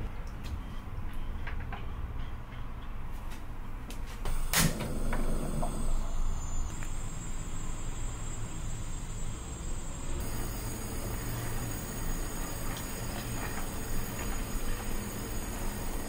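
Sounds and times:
gas stove burner running: 4.2s - 16.0s.

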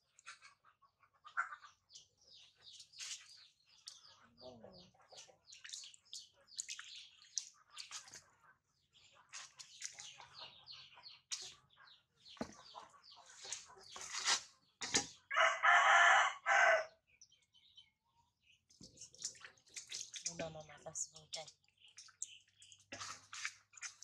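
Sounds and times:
water splashing in a steel bowl: 2.7s - 4.2s, 5.0s - 10.5s, 18.7s - 24.0s
rooster crowing: 15.3s - 16.9s.

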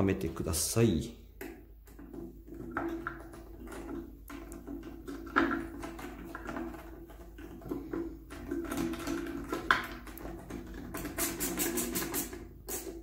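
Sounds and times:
plastic parts clicking and knocking: 1.4s - 12.5s.

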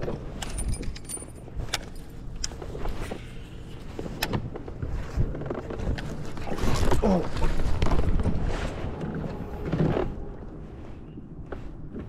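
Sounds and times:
fishing gear clicks and knocks: 0.0s - 8.4s.

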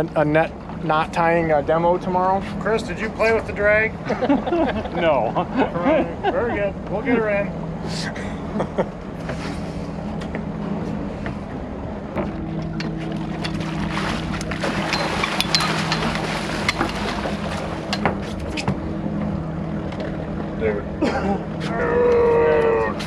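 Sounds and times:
boat engine humming: 0.0s - 23.0s
fish splashing at the surface: 13.6s - 18.0s.

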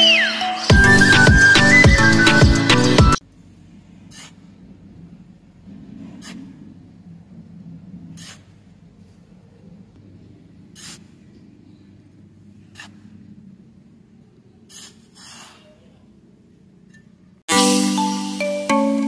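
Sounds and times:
shovel scraping damp sand: 4.1s - 4.5s, 8.2s - 8.6s, 10.8s - 11.2s.

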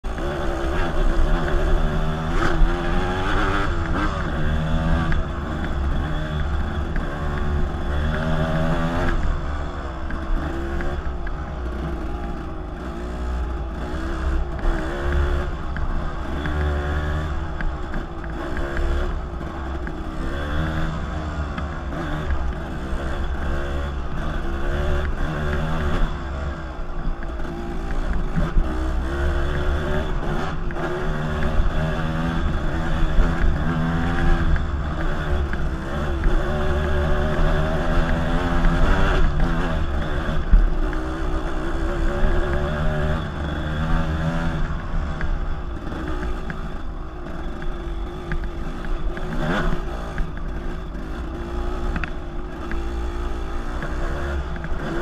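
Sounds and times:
dirt bike engine revving: 0.1s - 55.0s.

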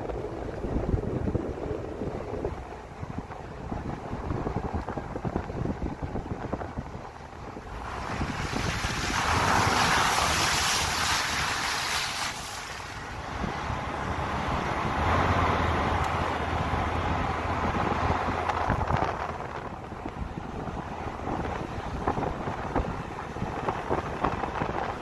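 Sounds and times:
wind buffeting microphone: 0.0s - 25.0s
tyres hissing through slush: 7.8s - 13.2s.

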